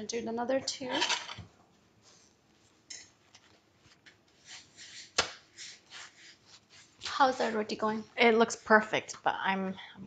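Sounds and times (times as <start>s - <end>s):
soft scrapes: 3.5s - 7.7s.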